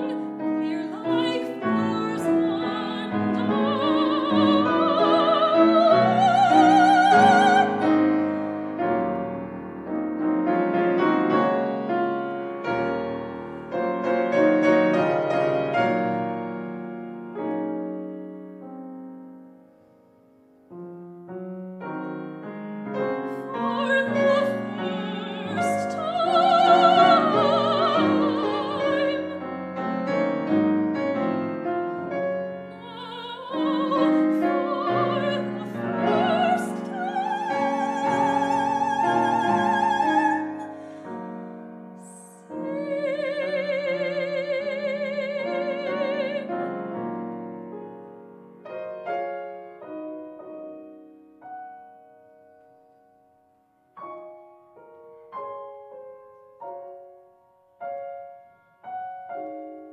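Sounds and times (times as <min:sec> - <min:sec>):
soprano singing opera: 0:00.0 - 0:08.4, 0:23.0 - 0:29.6, 0:32.7 - 0:41.4, 0:42.0 - 0:46.7
piano accompaniment: 0:00.0 - 0:59.9.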